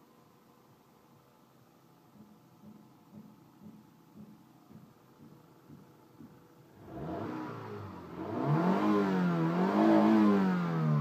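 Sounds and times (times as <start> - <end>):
car engine revving: 6.7 - 11.0.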